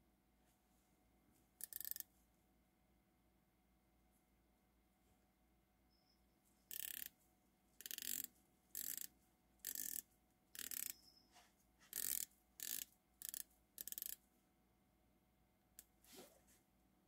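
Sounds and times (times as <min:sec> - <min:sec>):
watch bezel ratcheting clicks: 0:01.6 - 0:02.0, 0:06.7 - 0:07.1, 0:07.8 - 0:10.0, 0:10.6 - 0:11.0, 0:11.9 - 0:14.2.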